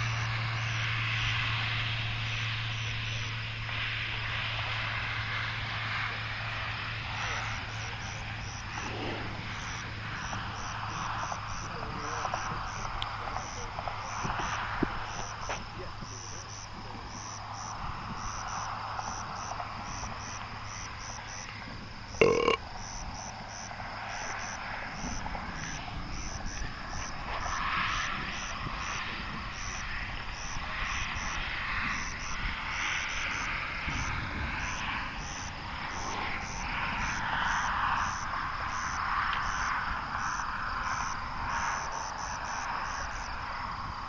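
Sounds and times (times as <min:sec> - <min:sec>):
steady low hum: 0:00.0 - 0:37.2
rushing noise: 0:00.0 - 0:38.5
insects chirping: 0:00.0 - 0:44.0.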